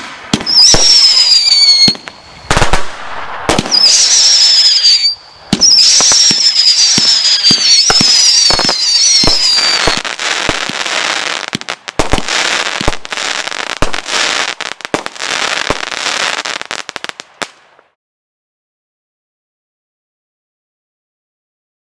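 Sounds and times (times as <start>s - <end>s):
falling firework whistle: 0.0s - 11.4s
firework reports and crackling: 0.0s - 17.9s.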